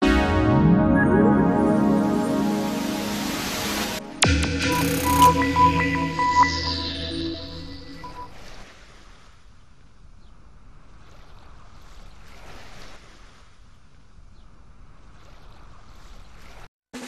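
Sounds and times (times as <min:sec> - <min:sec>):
ocean waves surf: 0:00.2 - 0:09.5, 0:11.2 - 0:13.5.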